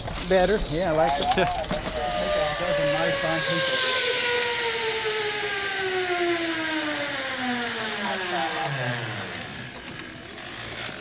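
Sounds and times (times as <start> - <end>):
zip line pulleys whirring: 0.0 - 11.0.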